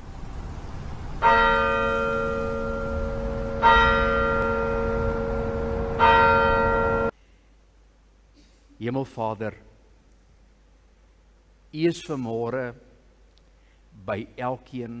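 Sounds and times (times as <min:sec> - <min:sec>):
low rumble: 0:00.0 - 0:07.1
church bell ringing: 0:01.2 - 0:07.1.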